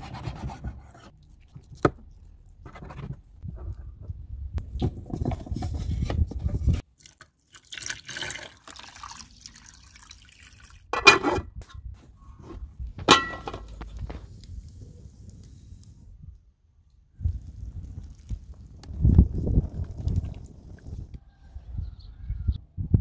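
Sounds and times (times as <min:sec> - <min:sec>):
water pouring into metal pot: 0:07.0 - 0:10.9
rough handling noise: 0:11.0 - 0:14.6
metal pot lid clanks: 0:13.1 - 0:13.6.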